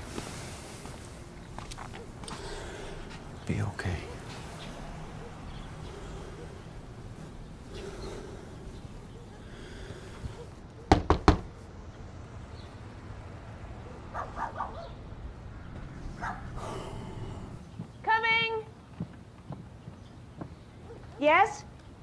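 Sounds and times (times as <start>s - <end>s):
loud knocks on a door: 10.9s - 11.5s.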